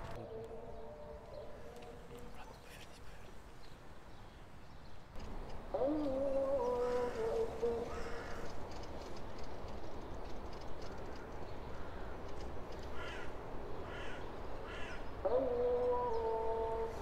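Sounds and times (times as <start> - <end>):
crow cawing: 7.9 - 8.6, 12.9 - 15.1.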